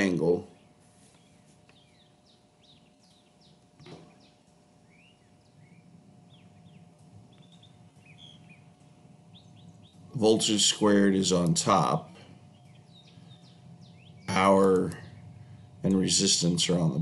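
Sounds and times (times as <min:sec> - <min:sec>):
bird chirps: 0:00.5 - 0:10.6, 0:12.4 - 0:15.7.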